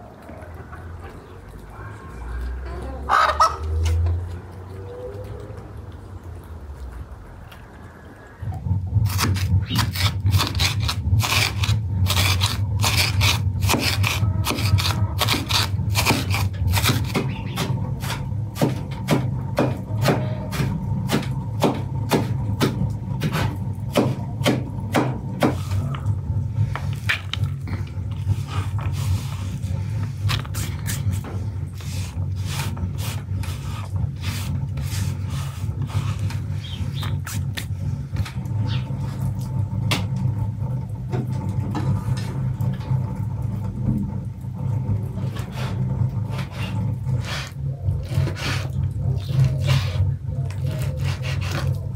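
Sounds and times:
knife chopping on wooden board: 9.1 - 25.6.

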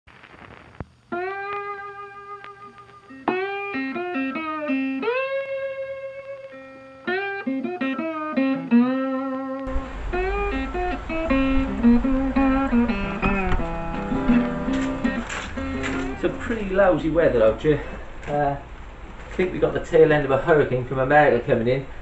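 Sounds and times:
blues guitar music: 1.1 - 19.2
rain: 9.7 - 13.6
wind: 9.7 - 22.0.

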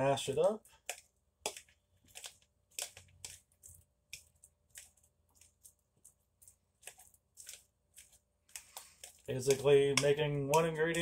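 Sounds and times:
fork scraping and tapping bowl: 0.8 - 5.5, 6.8 - 11.0.

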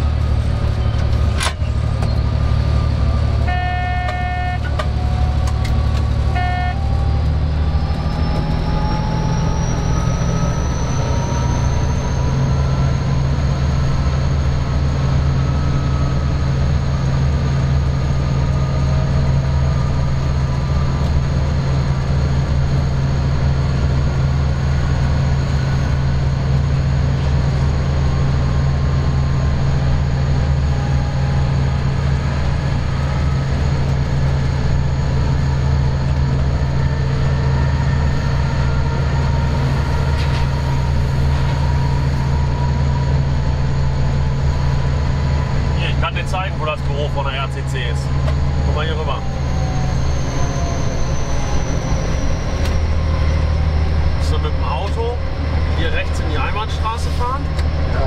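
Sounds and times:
locomotive engine hum: 0.0 - 58.0
rising engine whine: 0.0 - 58.0
horn toots: 3.4 - 4.8, 6.3 - 6.9.

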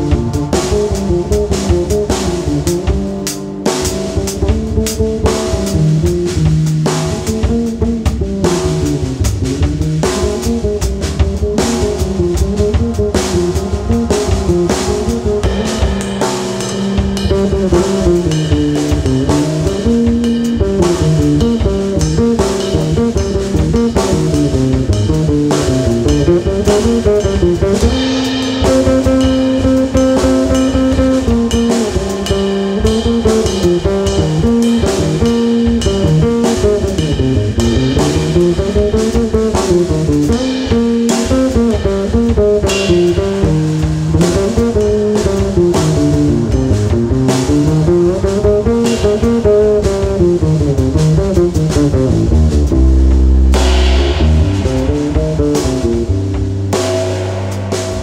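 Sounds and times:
drum kit and cymbals: 0.0 - 58.0
electric bass guitar melody: 0.0 - 58.0.

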